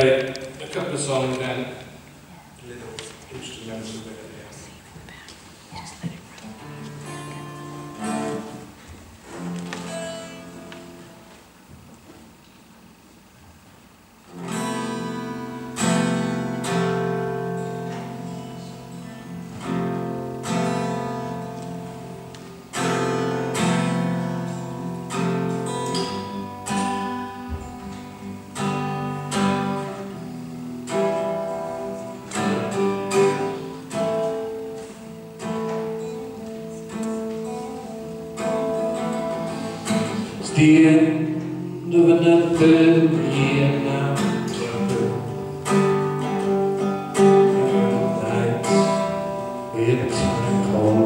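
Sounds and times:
acoustic guitar chords: 0:00.0 - 0:04.1, 0:06.0 - 0:51.0.

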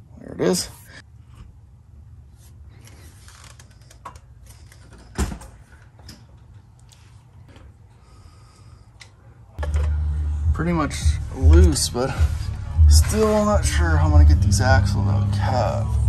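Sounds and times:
low steady hum: 0:04.0 - 0:16.0.

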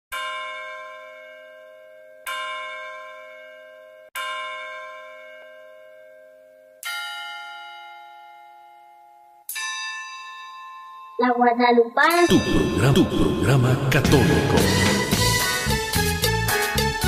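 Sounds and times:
bell ringing: 0:09.5 - 0:14.0.

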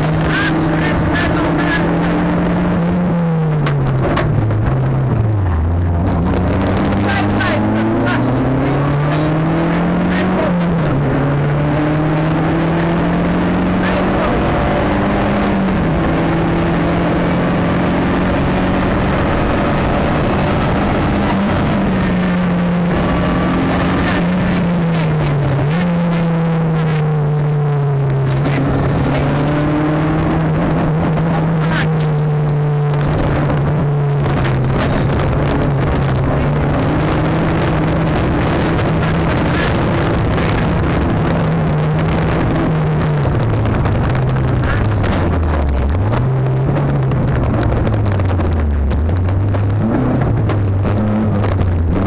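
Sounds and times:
car engine under hard driving: 0:00.0 - 0:52.0
gravel ticks and clatter: 0:27.4 - 0:29.9, 0:31.7 - 0:37.2, 0:38.2 - 0:52.0.

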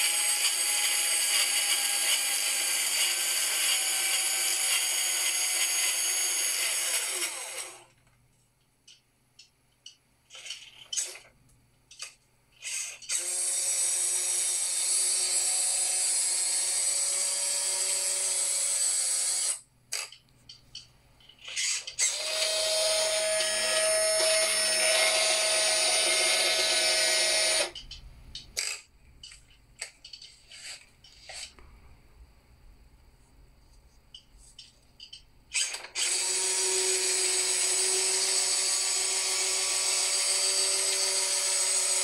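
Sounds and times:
electric motor and gears whining: 0:00.0 - 0:08.0, 0:12.6 - 0:19.6, 0:21.5 - 0:27.9, 0:35.5 - 0:42.0.

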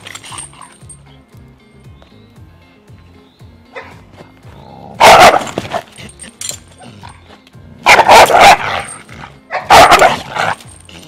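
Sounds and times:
dog barking hard: 0:05.0 - 0:06.2, 0:07.8 - 0:10.7.

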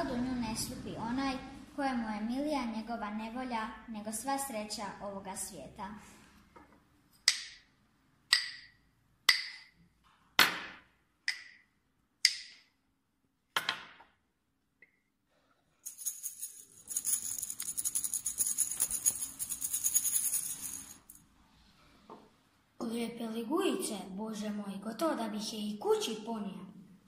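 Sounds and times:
wood block knocks: 0:08.3 - 0:08.7, 0:09.3 - 0:09.7
high shaken rattle jingle: 0:15.8 - 0:21.2.

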